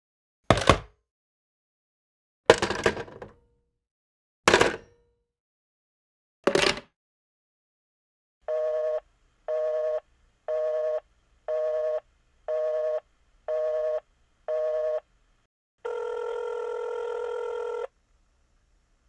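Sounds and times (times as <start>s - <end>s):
telephone busy signal beeps: 8.5s - 15.0s.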